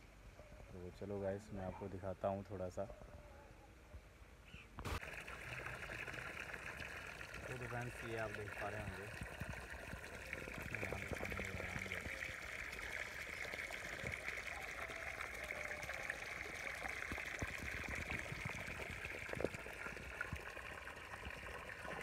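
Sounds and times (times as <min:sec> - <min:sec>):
hose water pouring into mud: 0:04.9 - 0:22.0.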